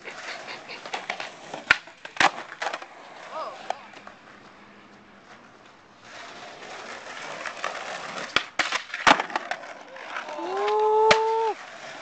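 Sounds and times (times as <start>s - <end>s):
skateboard wheels rolling on pavement: 0.0s - 12.0s
skateboard clacks: 0.1s - 12.0s
loud skateboard smack: 1.5s - 2.8s, 8.2s - 9.7s, 10.6s - 11.5s
person shouting: 10.2s - 11.6s.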